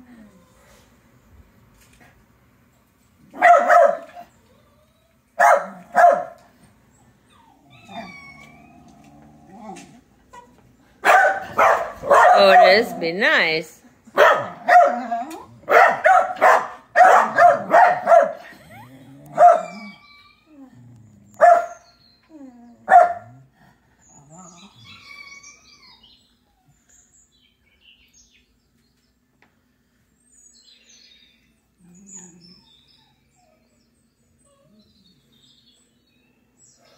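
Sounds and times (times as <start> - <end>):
small dog barking: 3.3 - 4.3, 5.4 - 6.4, 11.0 - 12.8, 14.1 - 18.4, 19.3 - 19.9, 21.4 - 21.8, 22.9 - 23.4.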